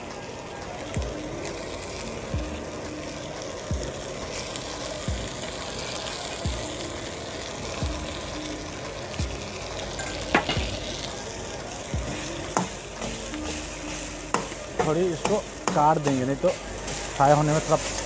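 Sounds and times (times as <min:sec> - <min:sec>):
noodles sizzling in a wok: 0:00.0 - 0:18.0
metal ladles scraping a wok: 0:12.1 - 0:18.0.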